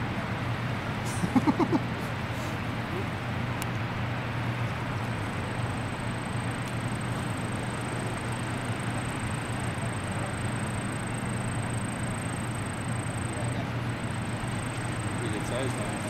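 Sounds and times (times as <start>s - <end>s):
rushing background noise: 0.0s - 16.0s
low hum: 5.0s - 16.0s
thin high whine: 5.0s - 16.0s.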